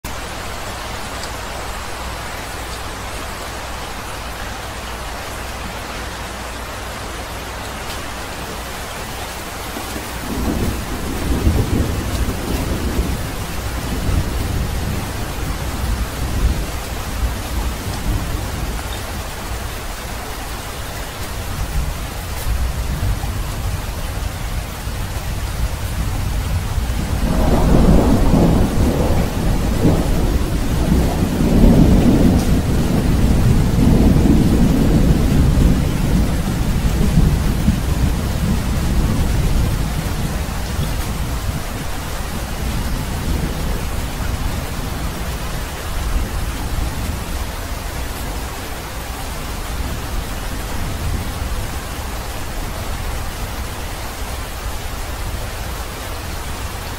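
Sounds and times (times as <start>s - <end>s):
steady rain: 0.0s - 56.9s
thunder rumbling: 7.9s - 19.9s, 21.2s - 54.2s.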